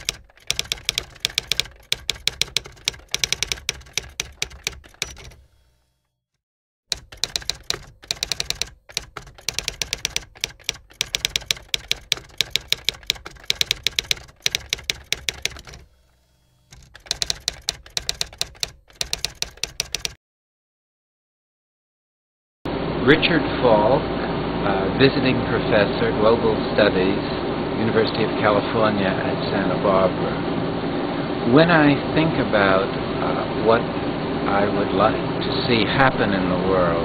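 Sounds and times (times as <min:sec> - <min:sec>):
keyboard typing clicks: 0:00.0 - 0:05.5, 0:06.9 - 0:15.9, 0:16.7 - 0:20.2.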